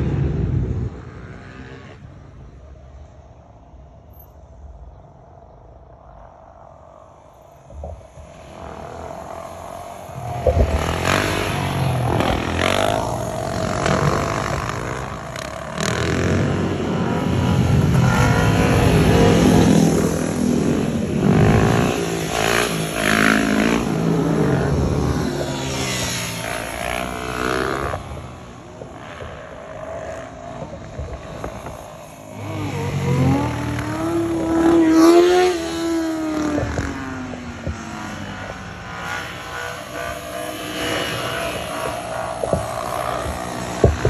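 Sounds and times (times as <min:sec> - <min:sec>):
motorcycles revving: 0:00.0 - 0:03.7, 0:07.2 - 0:44.0.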